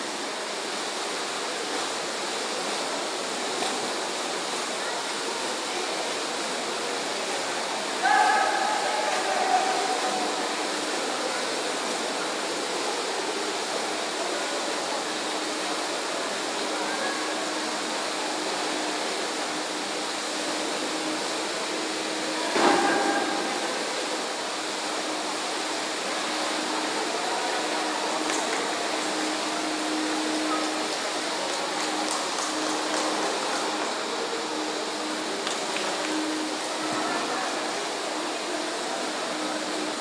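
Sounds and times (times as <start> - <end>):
splashing water: 27.0 - 36.9.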